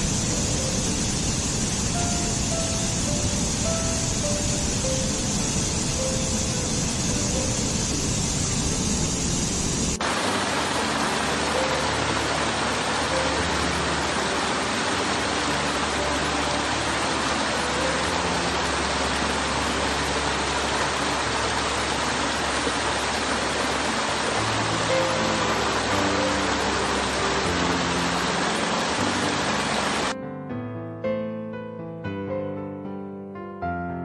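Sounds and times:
stream water cascading over rocks: 0:00.0 - 0:30.2.

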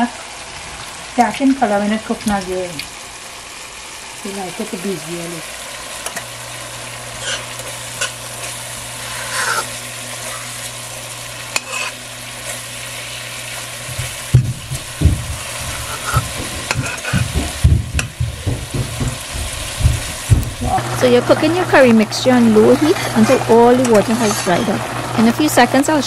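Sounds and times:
onions sizzling in a pot: 0:00.0 - 0:26.0
metal spoon stirring and scraping: 0:11.5 - 0:12.6, 0:15.9 - 0:17.2, 0:22.6 - 0:24.7
dull low thumps: 0:13.9 - 0:20.8.

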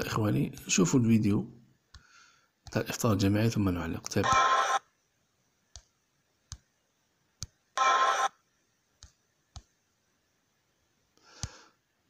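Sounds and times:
fingers tapping smartphone screen: 0:05.7 - 0:06.7.

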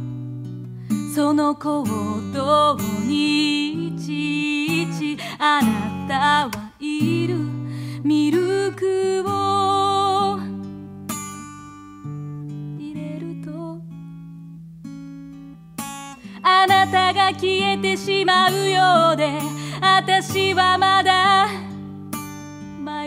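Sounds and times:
acoustic guitar: 0:00.0 - 0:23.0
woman singing: 0:00.9 - 0:10.7, 0:12.7 - 0:14.0, 0:16.2 - 0:21.8, 0:22.6 - 0:23.0.

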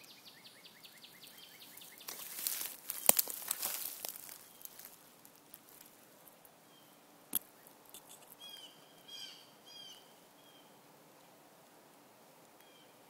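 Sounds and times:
bird chirps: 0:00.0 - 0:02.2, 0:06.7 - 0:10.8
leaves and twigs rustling: 0:01.2 - 0:06.7.

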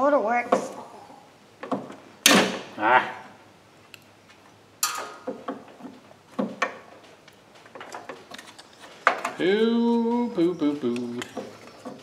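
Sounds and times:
metal tools clinking and knocking: 0:04.8 - 0:05.4.

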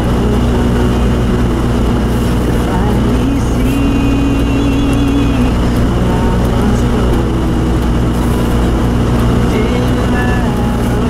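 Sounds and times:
car engine drone in cabin: 0:00.0 - 0:11.0
heater blower on high: 0:00.0 - 0:11.0
tyres on snowy road: 0:00.0 - 0:11.0.

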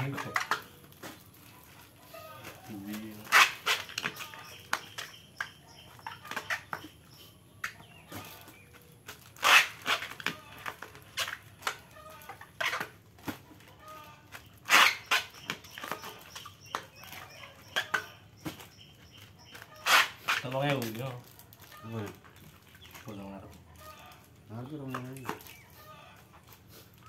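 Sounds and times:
plastic bags crinkling: 0:00.0 - 0:06.7, 0:07.8 - 0:27.0.

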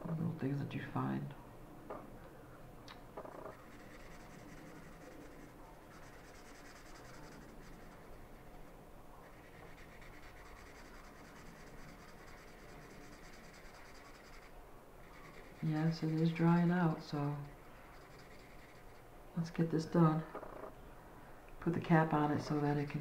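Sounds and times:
felt marker scratching on paper: 0:03.2 - 0:19.1.

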